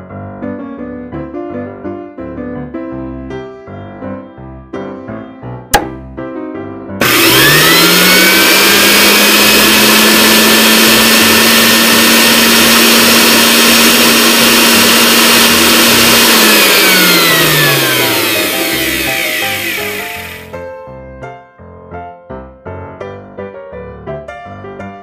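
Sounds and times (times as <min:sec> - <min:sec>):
toy vacuum motor whirring: 0:07.0 - 0:20.5.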